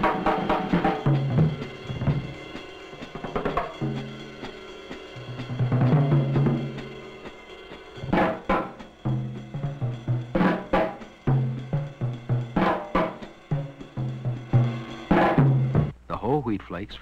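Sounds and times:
low drum beat: 0.0s - 16.1s
sharp drum hits: 8.0s - 16.0s.

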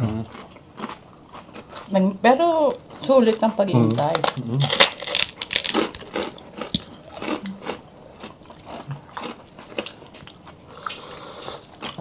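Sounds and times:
chewing and lip-smacking: 0.1s - 1.9s, 4.7s - 12.0s.

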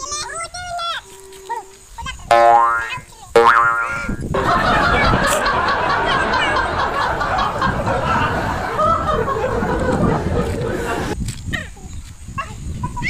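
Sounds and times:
cartoon boing rising in pitch: 2.3s - 4.2s
laughing and snickering: 4.4s - 11.2s.

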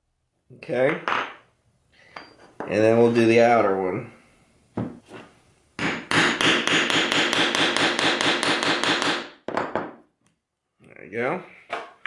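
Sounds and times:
hammer striking steel punch: 5.8s - 9.9s.

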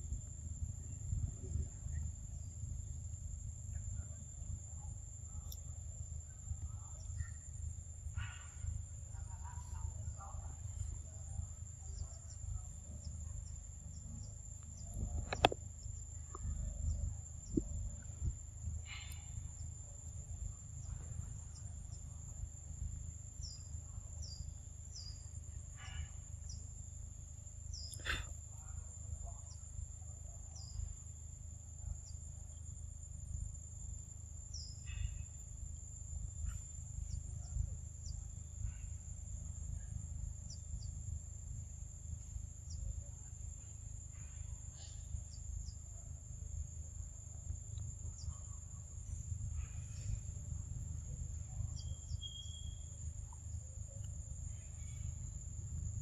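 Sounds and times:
high-pitched insect drone: 51.6s - 53.2s.

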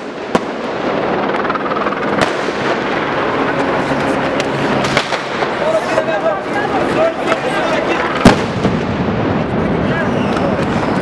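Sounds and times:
crowd and street noise: 2.0s - 11.0s
grenade bangs: 4.4s - 5.8s, 8.1s - 10.0s.

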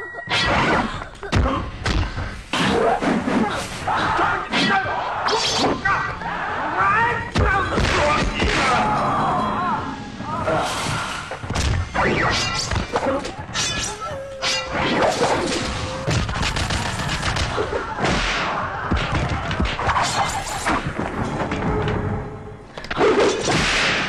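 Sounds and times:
held tone: 8.5s - 10.4s.

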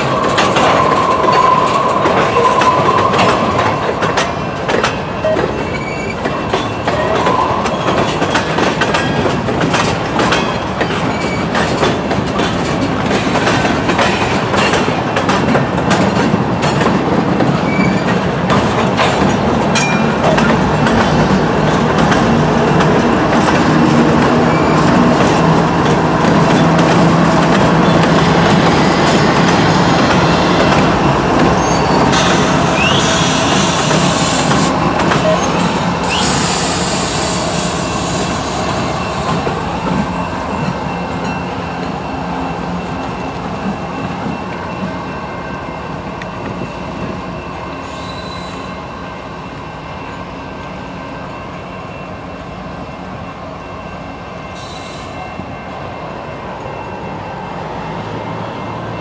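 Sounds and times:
wheel squealing on rail: 0.0s - 15.0s, 17.4s - 42.2s, 47.6s - 49.0s, 54.4s - 59.0s
train wheels clattering over rail joints: 0.0s - 42.0s
diesel locomotives passing: 0.0s - 59.0s.

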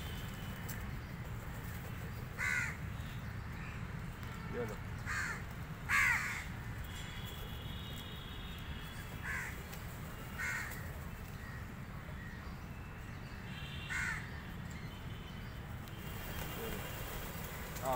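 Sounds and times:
crows cawing: 2.4s - 2.8s, 5.0s - 7.2s, 9.2s - 9.6s, 10.4s - 11.6s, 13.8s - 14.4s.

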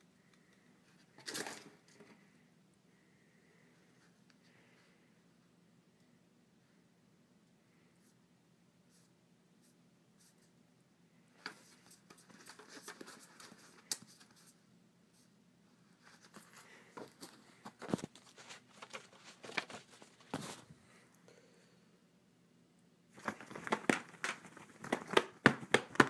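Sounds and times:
faint rustling: 11.3s - 21.2s.

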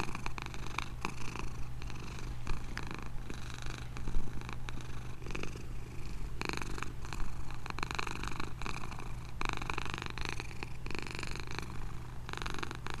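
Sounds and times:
cat purring: 0.0s - 13.0s.

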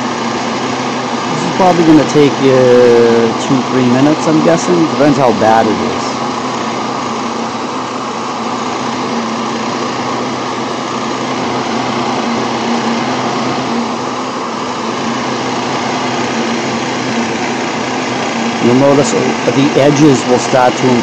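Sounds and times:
motor hum: 0.0s - 21.0s.

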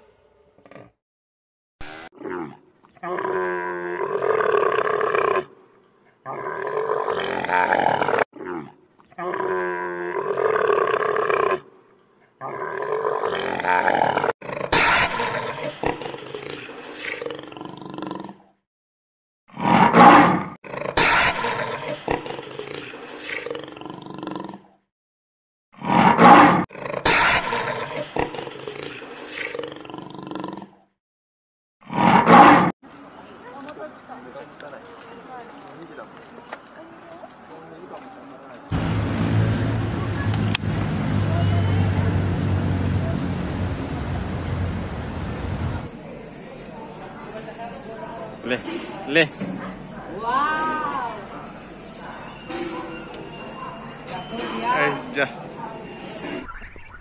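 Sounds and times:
animal roars and bellowing calls: 1.8s - 5.6s, 6.2s - 11.7s, 12.4s - 18.5s, 19.6s - 24.8s.

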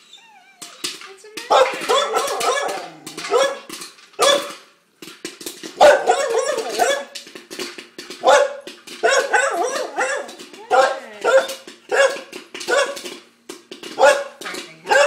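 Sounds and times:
dog barking: 1.5s - 4.6s, 5.8s - 7.2s, 8.2s - 13.0s, 14.0s - 15.0s.

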